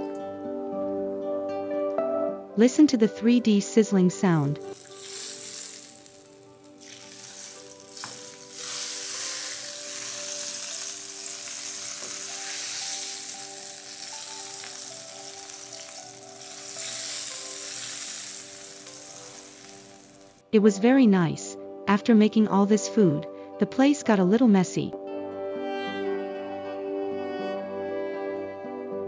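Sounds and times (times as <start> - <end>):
hot oil sizzling: 4.6 - 20.4.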